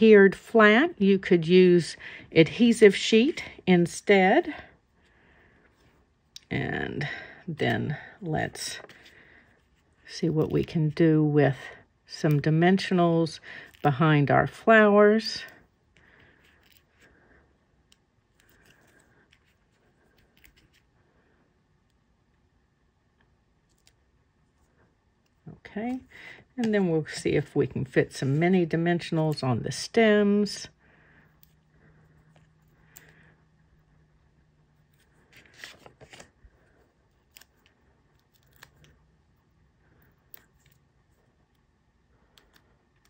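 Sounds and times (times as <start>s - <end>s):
paper rustling: 35.0s - 36.3s
paper crinkling: 35.0s - 38.9s.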